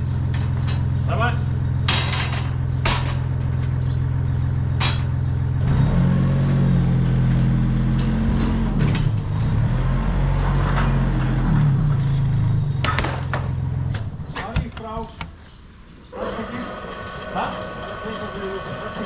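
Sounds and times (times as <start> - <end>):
diesel engine revving: 0.0 - 15.1, 16.1 - 19.0
light metal clanks: 1.8 - 4.0, 4.7 - 5.3.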